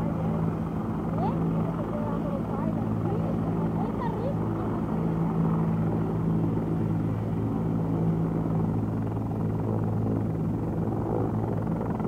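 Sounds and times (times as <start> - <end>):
helicopter rotor running: 0.0 - 12.0.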